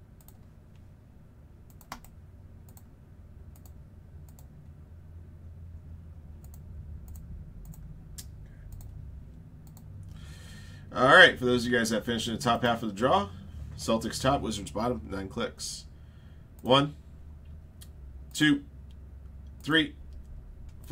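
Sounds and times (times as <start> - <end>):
low steady hum: 0.0 - 20.9
keyboard and mouse clicks: 0.2 - 0.8, 1.7 - 2.9, 3.5 - 4.5, 6.4 - 9.0, 9.6 - 9.9.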